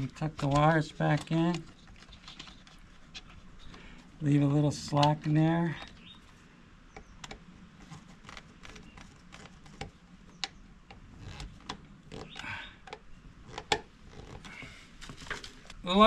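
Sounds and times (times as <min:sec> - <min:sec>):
wires clicking against plastic box: 0:00.0 - 0:03.8.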